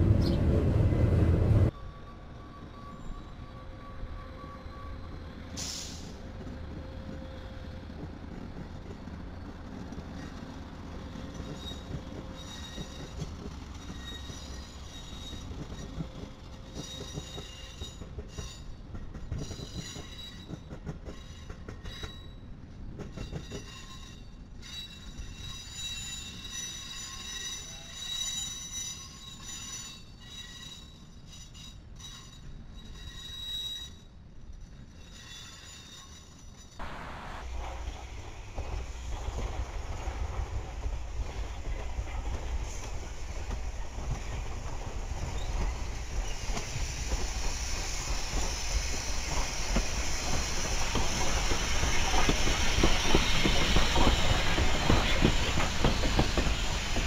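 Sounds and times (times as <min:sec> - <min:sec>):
locomotive engine rumble: 0:00.0 - 0:01.7
rolling rail noise: 0:00.0 - 0:57.0
train wheels squealing: 0:01.7 - 0:57.0.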